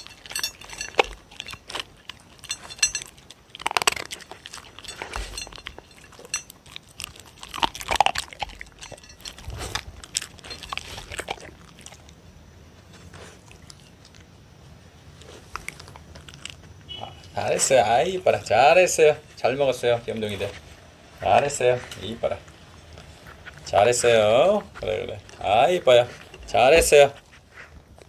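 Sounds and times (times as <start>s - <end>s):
dogs chewing kibble: 0.0s - 18.9s, 19.5s - 28.0s.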